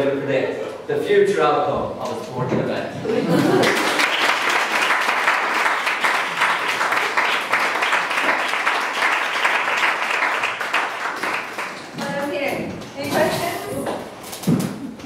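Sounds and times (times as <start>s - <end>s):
audience applauding: 3.3s - 12.3s.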